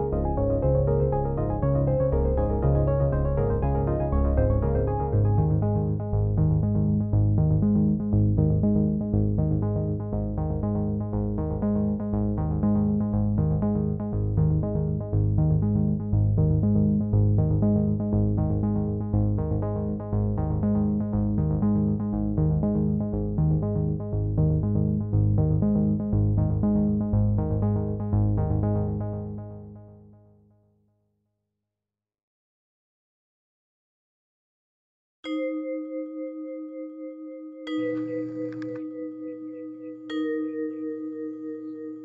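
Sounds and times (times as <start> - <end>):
synthesizer music with strong bass: 0.0 - 29.7.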